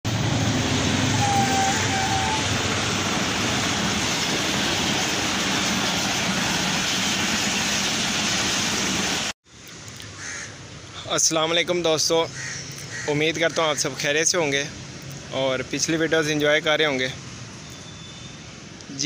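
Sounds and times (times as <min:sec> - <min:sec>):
train passing on rails: 0:00.1 - 0:09.4.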